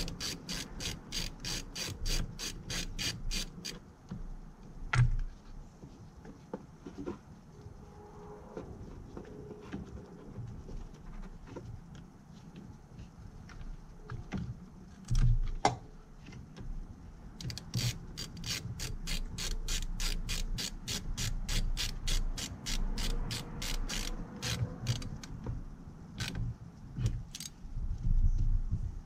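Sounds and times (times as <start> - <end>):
socket ratchet clicking: 0.0 - 3.8, 17.4 - 25.4, 26.1 - 26.4, 27.3 - 27.6.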